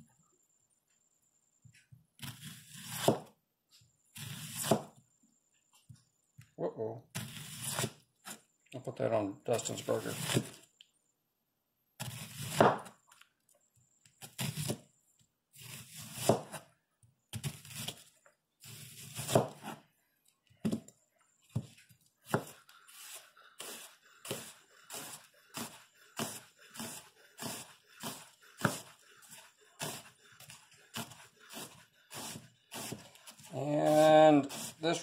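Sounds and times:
knife slicing onion on board: 0:02.2 - 0:03.3, 0:04.2 - 0:05.0, 0:07.1 - 0:08.4, 0:09.8 - 0:10.6, 0:12.0 - 0:13.0, 0:14.2 - 0:14.8, 0:15.6 - 0:16.7, 0:17.3 - 0:18.0, 0:18.6 - 0:19.8, 0:21.5 - 0:35.0.

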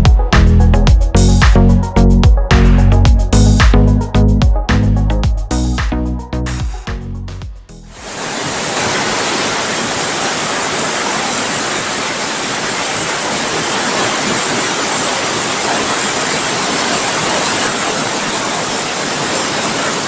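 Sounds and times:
heavy rain in strong wind: 0:07.9 - 0:20.0.

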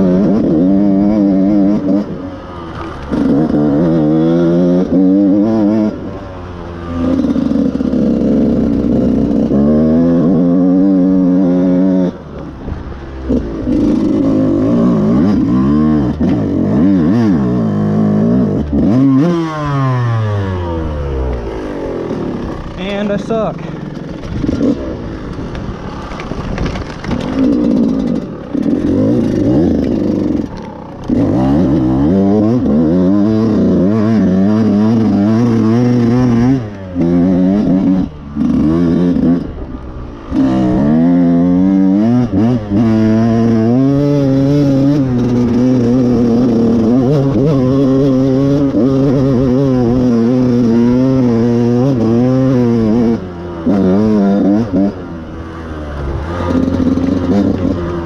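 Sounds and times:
dirt bike engine revving: 0:00.0 - 0:58.0.

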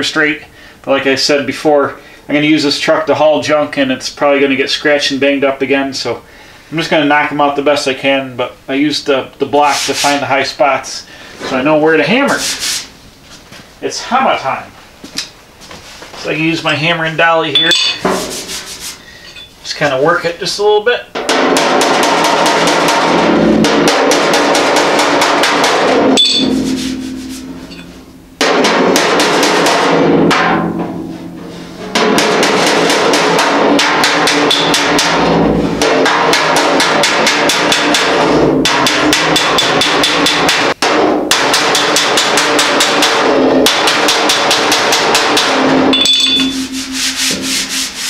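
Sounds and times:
metal ringing: 0:17.4 - 0:19.6, 0:25.8 - 0:29.0, 0:33.4 - 0:36.0, 0:44.6 - 0:48.0
hammer tapping on steel panel: 0:32.0 - 0:35.2, 0:35.8 - 0:47.9.

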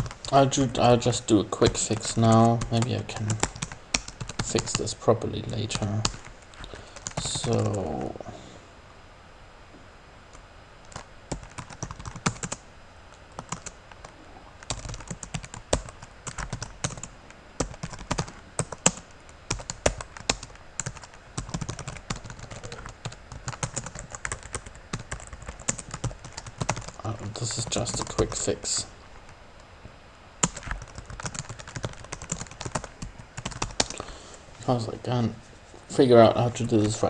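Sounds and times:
computer keyboard typing: 0:00.0 - 0:00.8, 0:01.7 - 0:08.1, 0:10.8 - 0:12.6, 0:13.3 - 0:28.6, 0:30.4 - 0:34.0.

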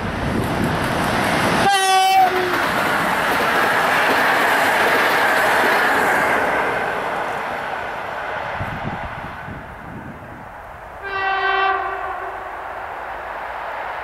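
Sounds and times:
train wheels rolling on rails: 0:00.0 - 0:14.0
train horn blast: 0:01.6 - 0:02.6, 0:11.0 - 0:12.6.

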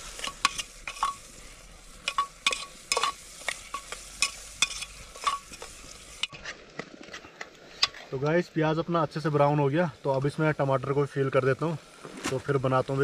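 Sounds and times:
faint sizzle: 0:00.0 - 0:13.0
metal spoon scraping pot: 0:00.2 - 0:01.2, 0:02.0 - 0:06.4.

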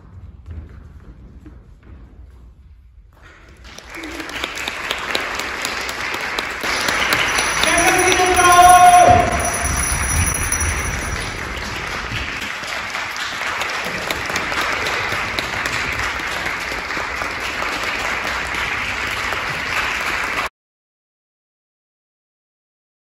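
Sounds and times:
audience applauding: 0:03.5 - 0:20.5.

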